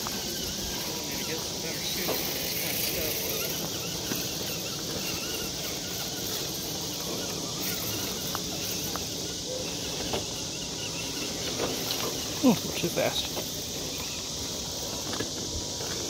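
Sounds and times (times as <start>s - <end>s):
night insects chirring: 0.0s - 16.0s.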